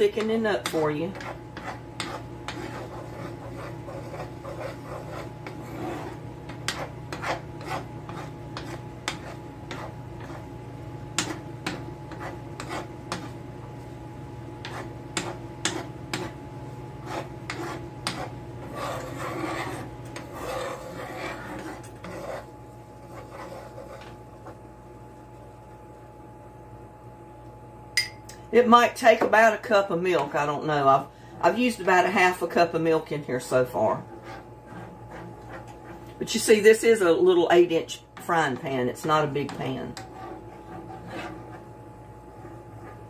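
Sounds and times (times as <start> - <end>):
spoon stirring and scraping gravy: 0.0 - 25.8, 33.6 - 36.6, 38.0 - 43.0
steady low hum: 0.0 - 43.0.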